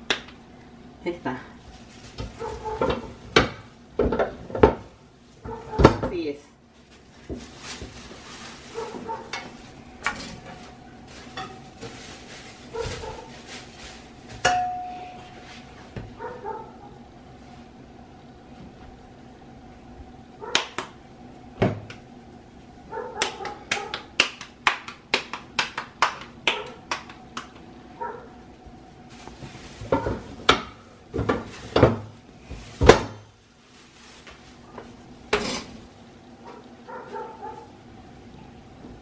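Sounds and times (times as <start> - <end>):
plastic crinkling: 1.6 - 3.2, 6.7 - 14.5, 29.1 - 30.5, 31.4 - 35.0.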